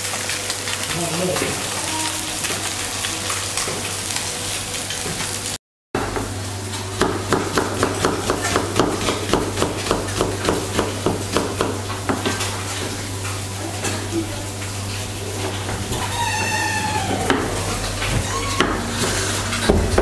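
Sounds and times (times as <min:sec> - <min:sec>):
fish sizzling in a grill pan: 0:00.0 - 0:05.6
knife chopping onion on board: 0:07.0 - 0:12.4.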